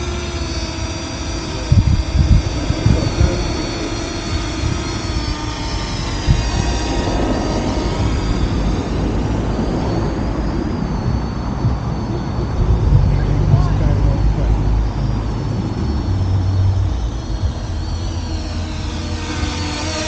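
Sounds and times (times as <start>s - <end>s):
drone propellers whining: 0.0s - 20.0s
low rumble: 0.0s - 20.0s.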